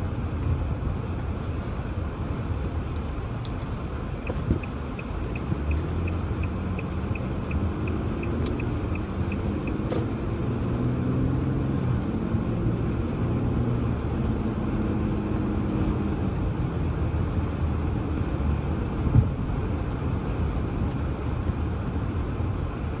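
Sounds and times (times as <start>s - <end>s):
turn signal ticking: 2.8s - 10.3s
car engine accelerating: 2.9s - 19.1s.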